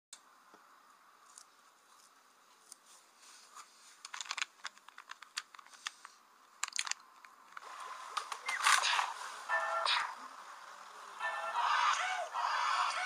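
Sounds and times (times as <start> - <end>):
faint crackling and clicking: 4.0 - 8.5.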